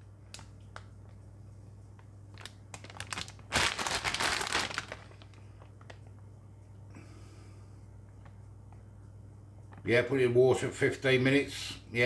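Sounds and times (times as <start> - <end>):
plastic bag crinkling: 2.3 - 6.2.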